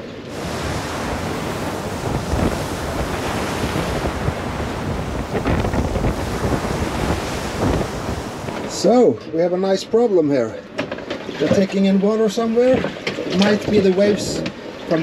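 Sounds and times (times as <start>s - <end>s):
wind buffeting microphone: 0.0s - 8.9s
breaking seas: 0.0s - 9.2s, 10.6s - 15.0s
water surging past hull: 0.0s - 15.0s.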